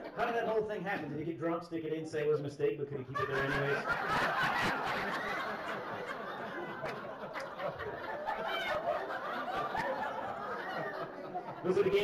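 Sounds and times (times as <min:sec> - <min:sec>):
audience laughing: 0:00.0 - 0:00.3, 0:03.1 - 0:12.0.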